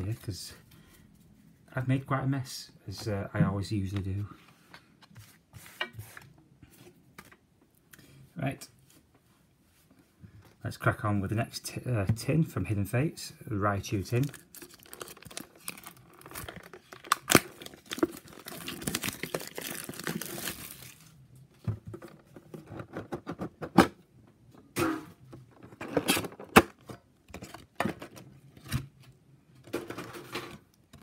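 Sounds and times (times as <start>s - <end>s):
plastic wrapping tearing and crinkling: 14.1s - 21.2s.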